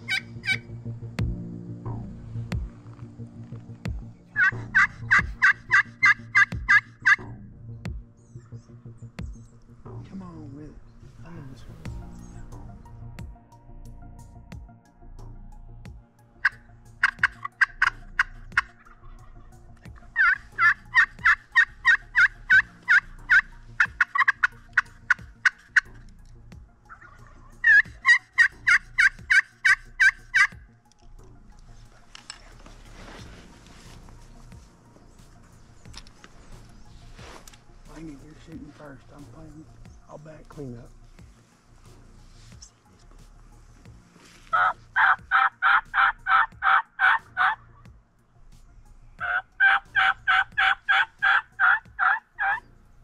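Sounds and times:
turkey yelping: 0.0s - 0.6s, 4.4s - 7.2s, 16.4s - 25.9s, 26.9s - 30.6s, 44.5s - 47.8s, 49.2s - 52.7s.

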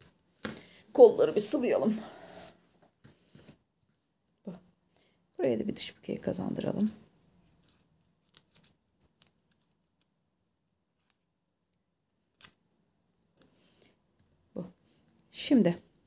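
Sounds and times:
paper rustling: 7.4s - 10.1s.

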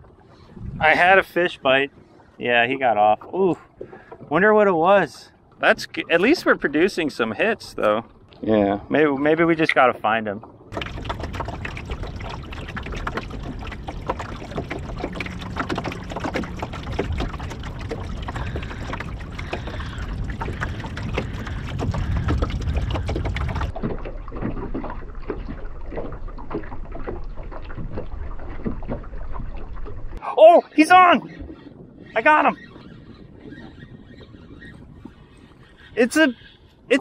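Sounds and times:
water slapping against hull: 0.0s - 8.4s, 9.5s - 37.0s
wind on microphone: 0.4s - 2.0s, 10.7s - 26.0s, 30.9s - 37.0s.

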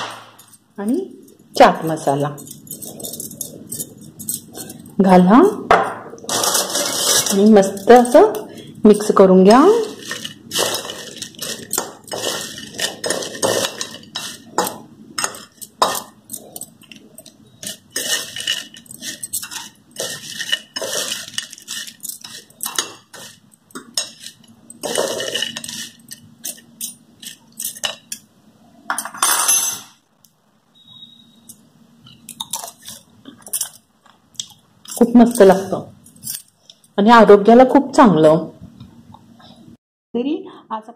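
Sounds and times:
fried chips rustling: 9.6s - 14.7s, 17.6s - 26.6s.

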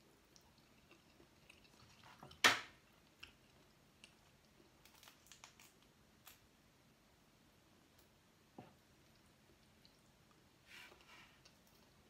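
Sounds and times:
seafood being chewed: 0.1s - 5.8s.

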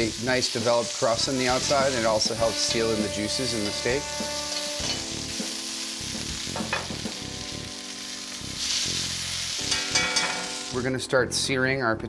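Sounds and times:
steak sizzling in hot fat: 0.0s - 11.0s.

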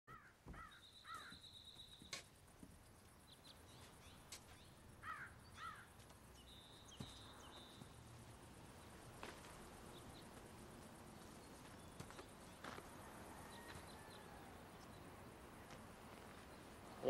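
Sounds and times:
bird chirping: 0.1s - 8.0s.

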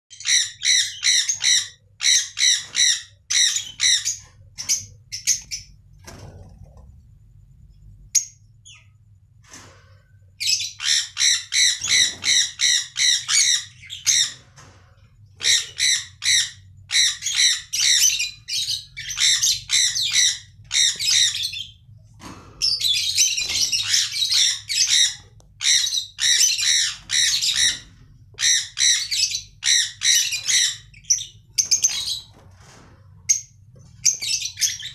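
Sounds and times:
parrots screeching: 0.2s - 5.4s, 10.4s - 14.5s, 15.4s - 21.8s, 22.6s - 32.3s.

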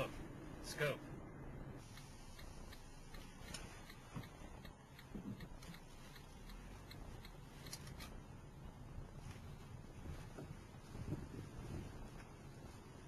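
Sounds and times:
faint regular ticking: 1.8s - 8.2s.

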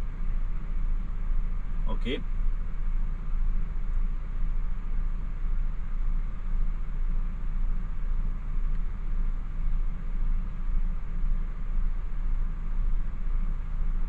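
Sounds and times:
truck cab engine drone: 0.0s - 14.0s.

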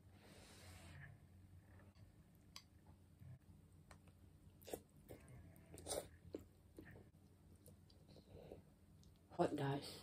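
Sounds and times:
slurping and chewing noodles: 4.6s - 7.0s.

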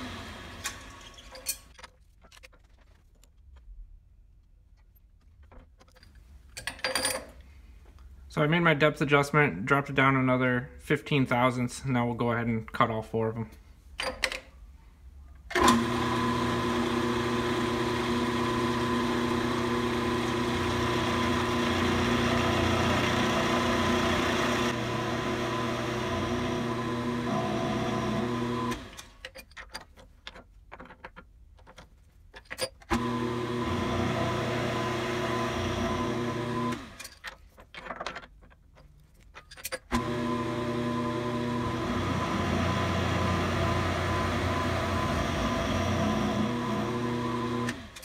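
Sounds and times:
milling machine cutting metal: 15.6s - 29.0s, 39.9s - 48.0s.

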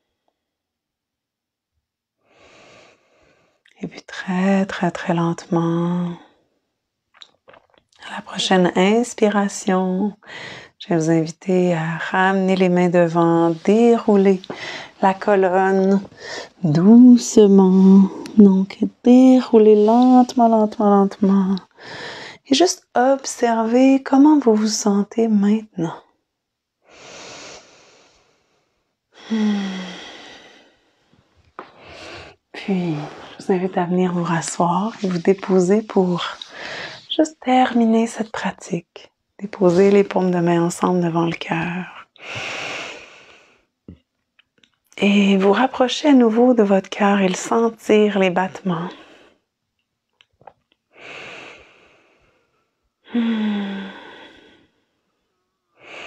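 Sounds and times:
faint lip clicks: 7.2s - 8.0s
woman breathing in deeply: 14.5s - 15.0s, 21.8s - 22.4s, 26.9s - 32.4s, 36.5s - 37.0s, 51.0s - 54.9s
woman sighing: 29.2s - 30.6s, 53.1s - 54.6s.

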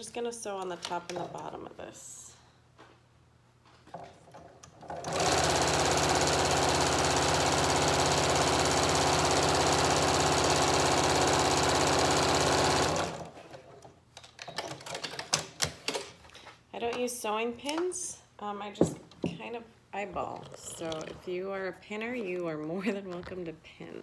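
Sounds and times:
electric sewing machine stitching: 4.8s - 13.4s.

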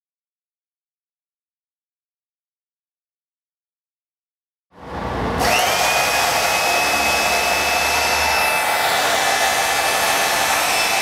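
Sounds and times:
hydraulic pump whine: 4.8s - 11.0s
motor running: 5.4s - 11.0s.

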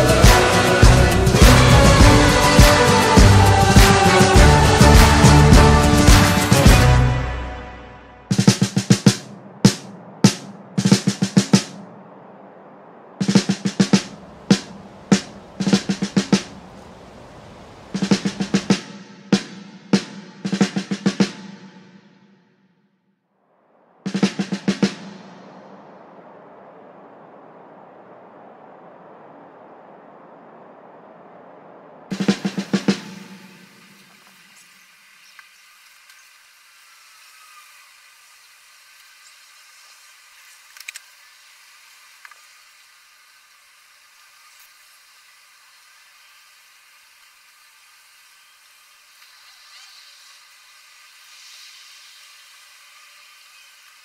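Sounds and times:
faint steady hiss: 0.0s - 21.2s, 23.4s - 54.0s
snare and drum hits: 8.3s - 11.9s, 18.0s - 22.3s, 24.1s - 25.6s, 32.1s - 33.6s.

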